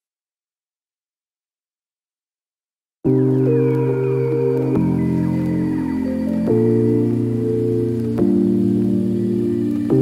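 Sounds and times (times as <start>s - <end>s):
music with sustained chords: 3.1s - 10.0s.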